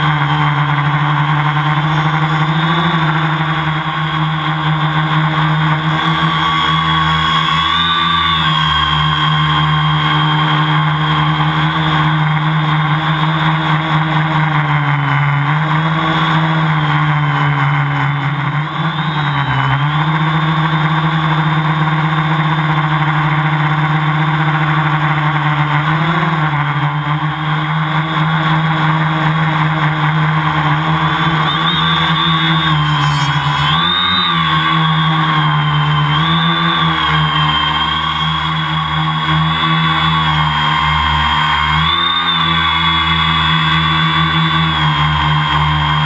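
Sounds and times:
drone motors and propellers droning: 0.0s - 46.0s.

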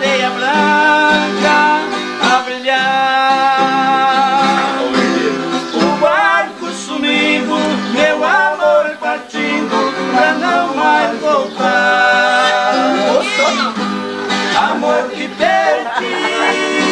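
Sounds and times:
man singing: 0.0s - 13.8s, 14.4s - 16.9s
acoustic guitar: 0.0s - 16.9s.

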